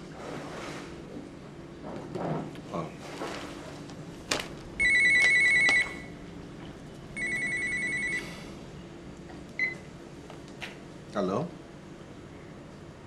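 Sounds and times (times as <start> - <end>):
electronic telephone ringing: 4.8 - 6.1, 7.2 - 8.2.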